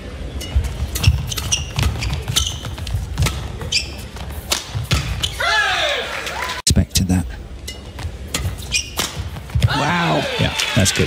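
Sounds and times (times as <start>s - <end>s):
shoes squeaking on court: 0.3s - 5.6s, 7.6s - 9.8s
rackets hitting shuttlecock: 0.4s - 5.5s, 7.6s - 9.9s.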